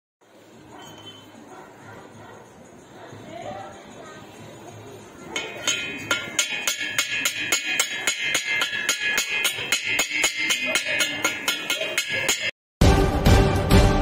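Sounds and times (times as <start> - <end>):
steel ringing: 4.3 - 12.6
hammer striking steel: 5.3 - 12.6.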